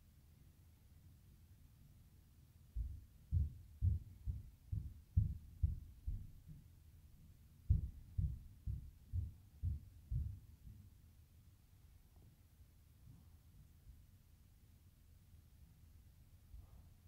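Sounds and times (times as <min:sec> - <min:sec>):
dull low thumps: 0:02.8 - 0:06.7, 0:07.7 - 0:10.9.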